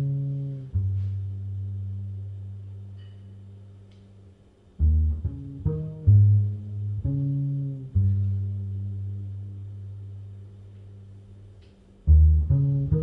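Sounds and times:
plucked double bass: 0.0 - 3.6, 4.8 - 11.2, 12.0 - 13.0
slow jazz piano: 0.0 - 4.2, 4.8 - 11.0.

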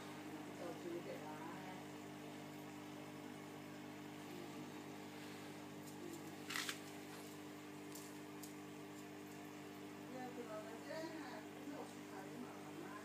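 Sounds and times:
aquarium filter motor humming: 0.0 - 13.0
scratchy crackle: 6.0 - 7.0.

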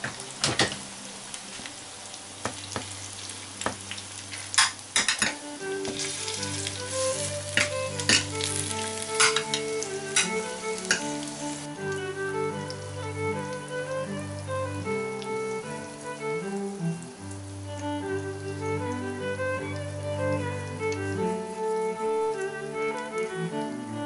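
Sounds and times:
background music: 0.0 - 24.0
potatoes squashing: 5.8 - 11.1.

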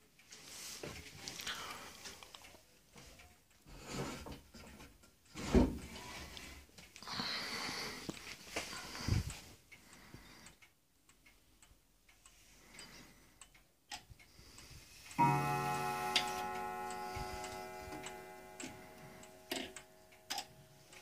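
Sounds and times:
clock ticking: 7.9 - 21.0
clock striking: 15.2 - 21.0.

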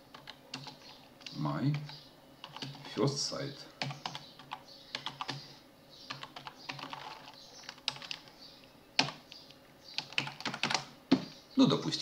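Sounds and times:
keyboard typing: 0.0 - 3.0, 3.8 - 5.4, 6.1 - 8.4, 9.0 - 11.4.

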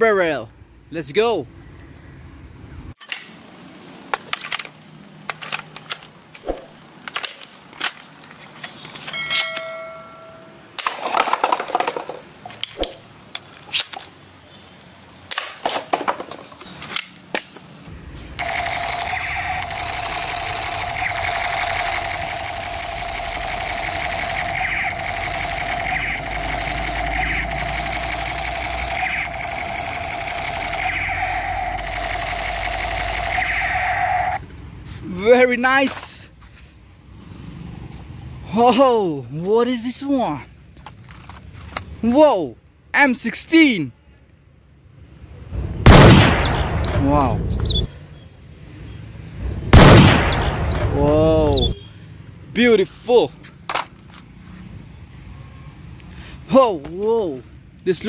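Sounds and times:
plastic cups clattering: 10.8 - 12.6
electronic toy gun buzz-tone: 18.4 - 34.4.

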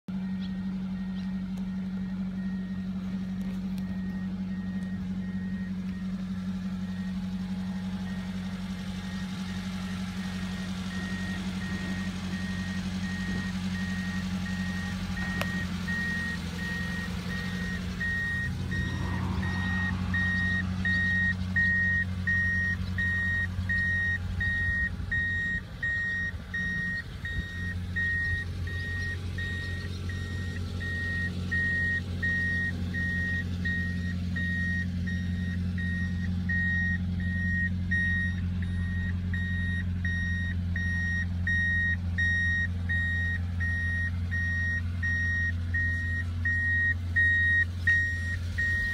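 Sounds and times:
truck engine idling: 0.0 - 48.9
high electronic warning beeps: 9.1 - 48.9.

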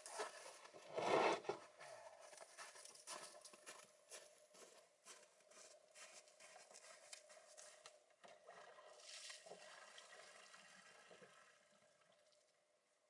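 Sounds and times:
footsteps crunching in snow: 0.0 - 7.9.

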